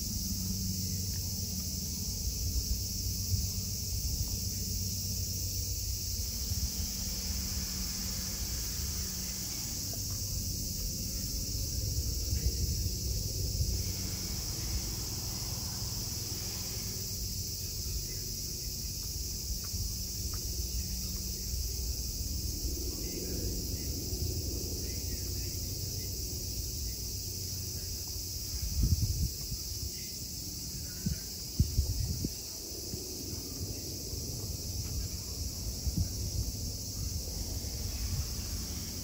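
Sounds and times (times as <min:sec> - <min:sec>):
high-pitched insect chorus: 0:00.0 - 0:39.0
low rumble: 0:00.1 - 0:18.7.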